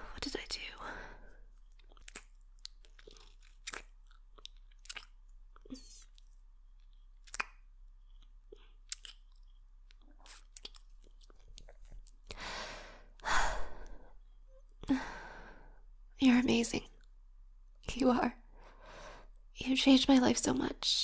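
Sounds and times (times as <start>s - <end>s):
lip smacks and mouth clicks: 1.6s - 12.4s
long breaths: 12.3s - 14.2s, 18.6s - 19.3s.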